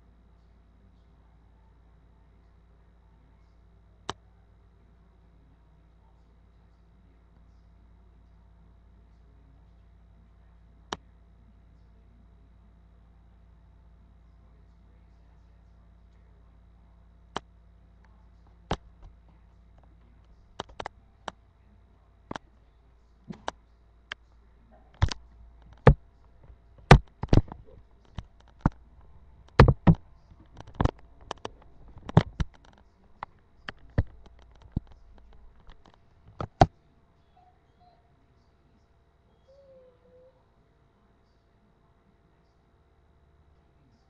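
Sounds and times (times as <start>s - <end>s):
sharp irregular clicks and knocks: 19.8s - 21.4s, 24.9s - 36.7s.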